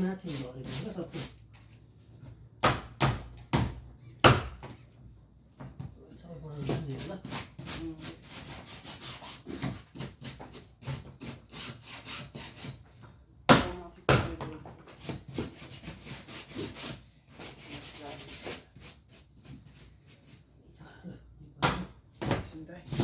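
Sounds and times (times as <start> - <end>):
mop rubbing on tiled floor: 0.0 - 1.9, 14.9 - 20.5.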